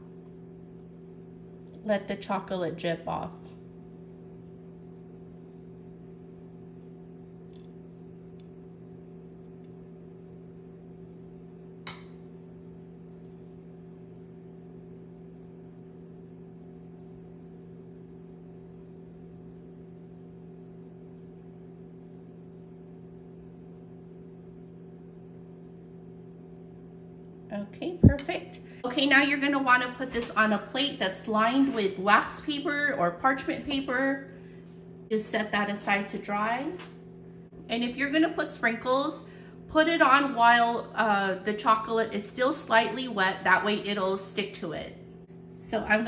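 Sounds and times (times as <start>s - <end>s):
low hum of held tones: 0.0s - 46.0s.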